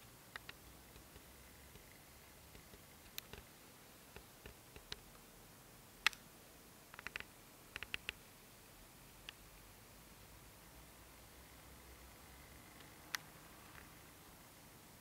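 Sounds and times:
quiet steady hiss: 0:00.0 - 0:15.0
small sharp clicks: 0:00.3 - 0:01.9, 0:02.5 - 0:03.5, 0:06.0 - 0:06.3, 0:06.9 - 0:08.2.

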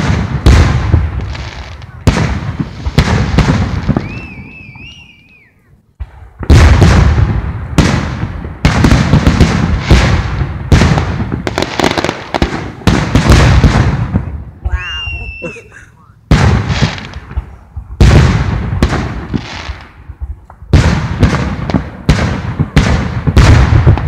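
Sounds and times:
fireworks booming: 0:00.0 - 0:24.0
high wavering whistle: 0:04.0 - 0:05.7, 0:14.7 - 0:15.6
rapid barrage of bangs: 0:16.3 - 0:19.5, 0:20.7 - 0:24.0.

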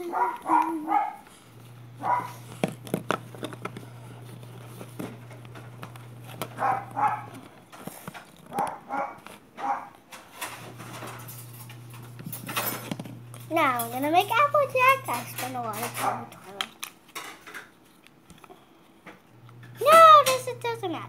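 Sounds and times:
steady low hum: 0:00.0 - 0:09.6.

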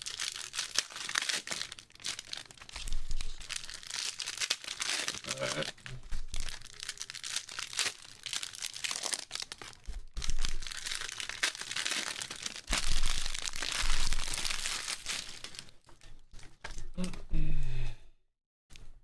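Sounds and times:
foil card packs crinkling: 0:00.0 - 0:16.9.

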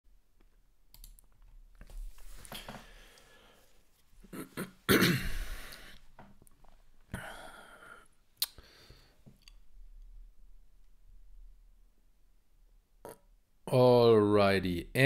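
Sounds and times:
man clearing his throat: 0:04.3 - 0:05.7.

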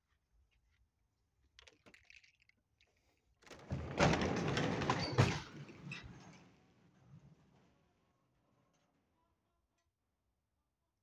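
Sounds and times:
wooden door scraping and rattling: 0:03.6 - 0:05.7.

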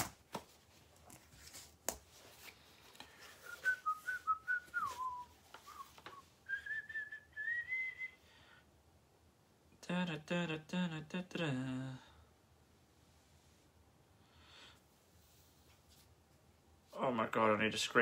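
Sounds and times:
man whistling softly: 0:03.2 - 0:08.2.

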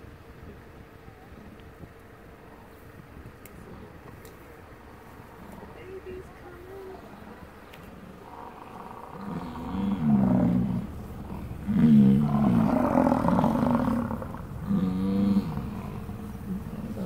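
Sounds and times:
bison bellowing: 0:06.8 - 0:17.0.

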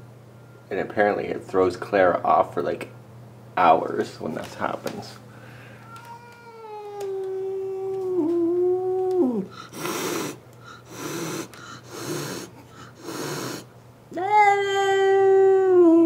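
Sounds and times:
cat howling: 0:05.8 - 0:09.6
cat hissing: 0:09.3 - 0:13.7.

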